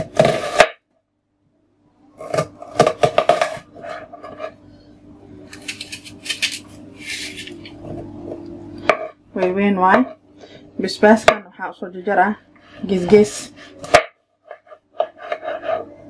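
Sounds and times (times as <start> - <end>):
knife slicing onion on board: 5.5 - 7.6.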